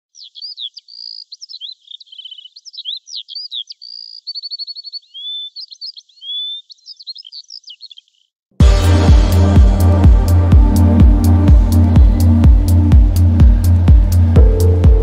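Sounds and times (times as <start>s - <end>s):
songbird singing: 0.0s - 8.4s.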